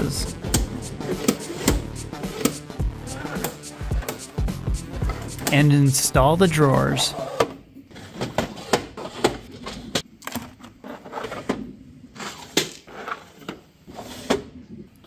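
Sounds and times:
plastic drawers sliding: 0:06.6 - 0:14.6.

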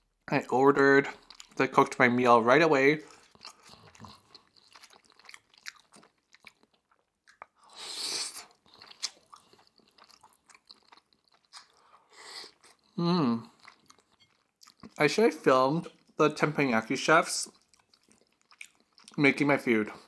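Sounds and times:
wet chewing: 0:01.1 - 0:01.9, 0:03.0 - 0:15.1, 0:17.4 - 0:19.2
hissing mouth sound: 0:07.6 - 0:08.5.

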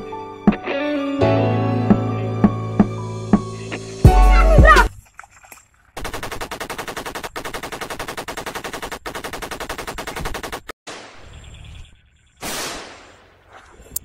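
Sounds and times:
machine-gun fire: 0:06.0 - 0:11.2.

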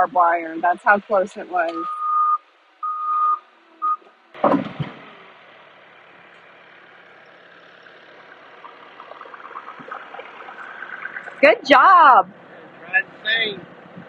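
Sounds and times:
steady low hiss: 0:00.0 - 0:06.5
reversing alarm beeping: 0:01.7 - 0:04.1
loud thump: 0:04.4 - 0:05.2.

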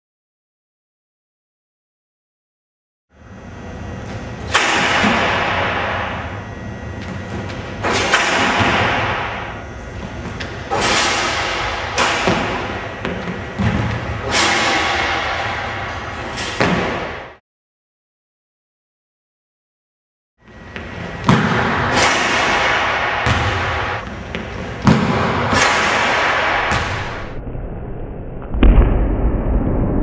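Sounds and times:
basketball thuds on rim and backboard: 0:07.0 - 0:09.6, 0:10.2 - 0:17.4, 0:20.8 - 0:27.4.

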